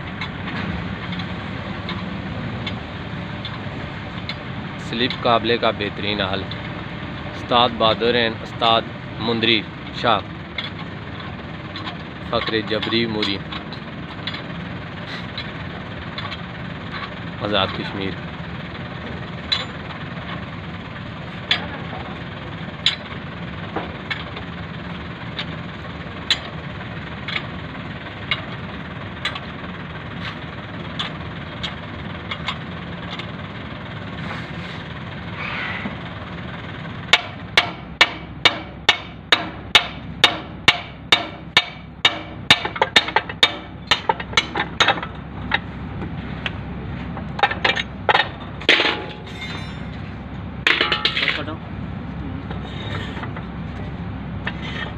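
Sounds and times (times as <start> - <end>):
hammer on steel: 37.1 - 45.0.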